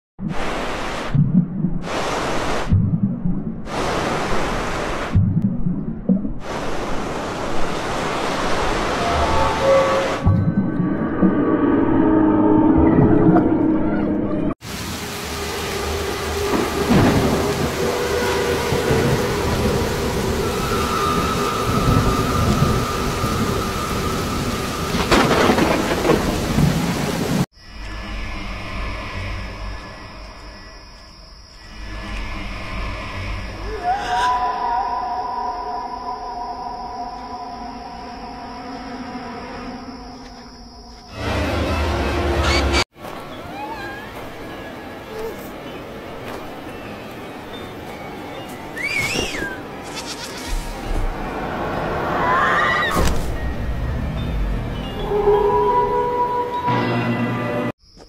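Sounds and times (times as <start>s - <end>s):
rain hissing: 1.8s - 2.7s, 3.7s - 5.2s, 6.4s - 10.2s, 14.6s - 27.5s
thunderclap rumbling: 14.7s - 27.5s.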